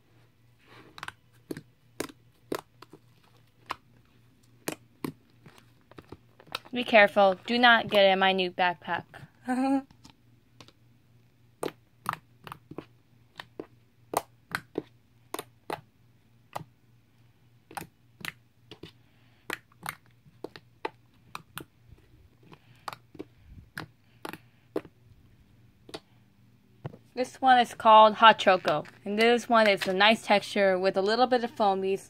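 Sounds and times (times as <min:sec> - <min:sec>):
slime clicking and popping: 0:11.6 - 0:16.8, 0:17.7 - 0:21.7.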